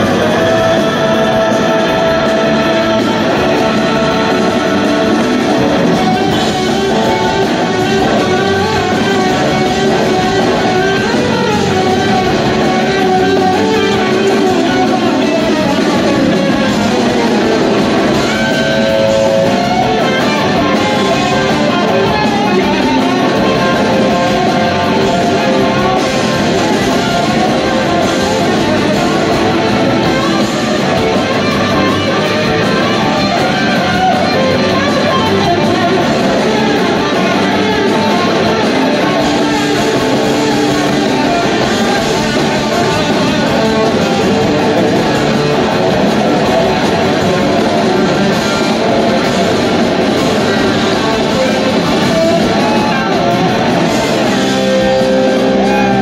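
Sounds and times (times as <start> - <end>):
drums: 0.0 - 56.0
electric guitar: 0.0 - 56.0.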